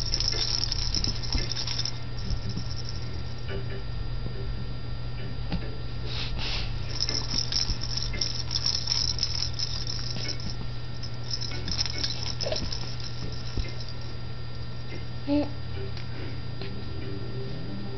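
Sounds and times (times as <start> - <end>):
toy rattle jingling and clicking: 0.0 - 3.4, 6.8 - 15.0.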